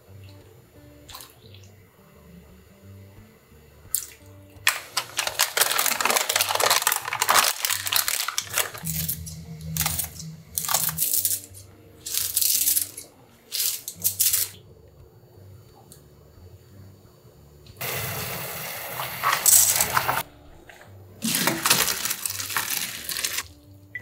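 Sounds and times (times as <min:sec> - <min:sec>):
broth simmering: 0:00.0 - 0:24.0
soft background music: 0:00.0 - 0:24.0
ingredients added to pan: 0:03.9 - 0:14.6, 0:17.8 - 0:20.3, 0:21.2 - 0:23.6
wine pouring: 0:04.8 - 0:14.4, 0:17.8 - 0:23.5.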